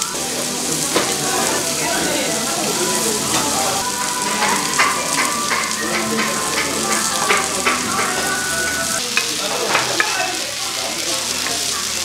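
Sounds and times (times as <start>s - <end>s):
food sizzling on a grill plate: 0.0s - 12.0s
utensils clinking and scraping: 2.5s - 9.0s.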